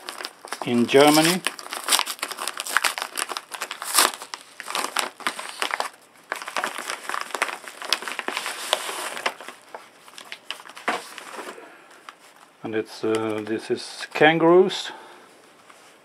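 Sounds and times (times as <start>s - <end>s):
taped flap tearing: 0.0s - 9.6s
bubble mailer crinkling and crackling: 0.0s - 14.2s.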